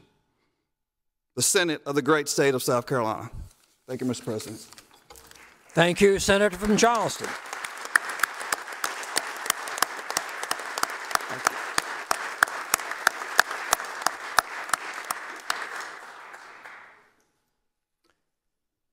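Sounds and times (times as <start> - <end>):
sharp even hand claps: 5.2 - 17.1
crowd applauding: 5.2 - 17.2.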